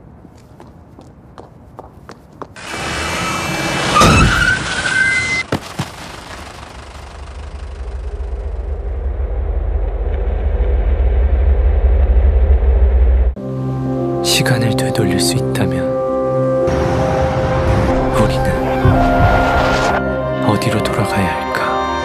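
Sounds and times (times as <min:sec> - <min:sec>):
car tyres screeching: 0:02.6 - 0:08.6, 0:16.7 - 0:20.0
crash impact: 0:02.7 - 0:12.2
low rumble: 0:06.2 - 0:13.4.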